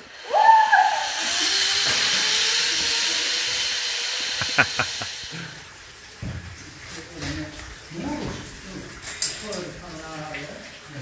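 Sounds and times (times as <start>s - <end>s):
thin whine: 0.0s - 5.4s
zip-line trolley hissing on cable: 0.0s - 5.7s
short rising cry: 0.1s - 5.4s.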